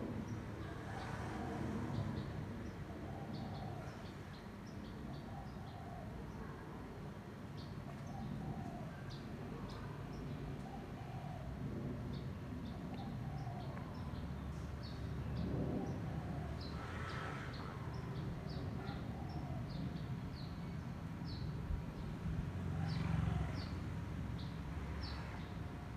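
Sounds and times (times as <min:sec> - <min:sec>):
distant jet airliner rumble: 0:08.3 - 0:20.3.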